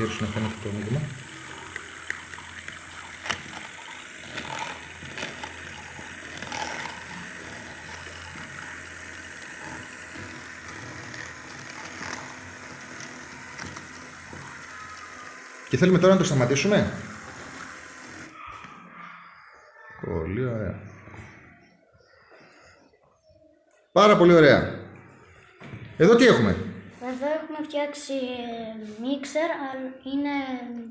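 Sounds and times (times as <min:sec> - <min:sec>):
stirring rod in liquid: 0:00.0 - 0:18.4
toy motor running: 0:00.0 - 0:18.8.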